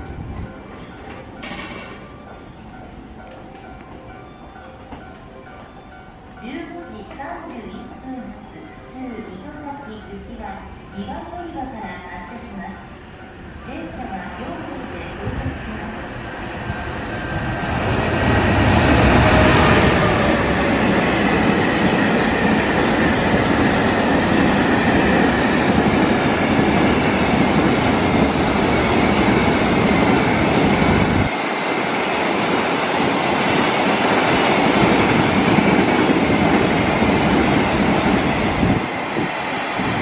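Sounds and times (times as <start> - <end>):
train wheels clattering on rail: 0.0 - 2.5, 16.8 - 40.0
locomotive passing: 0.0 - 40.0.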